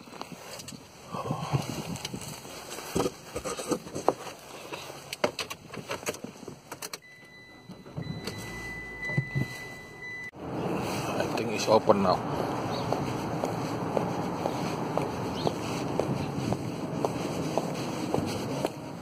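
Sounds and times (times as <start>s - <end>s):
high electronic warning tone: 7.0s - 10.4s.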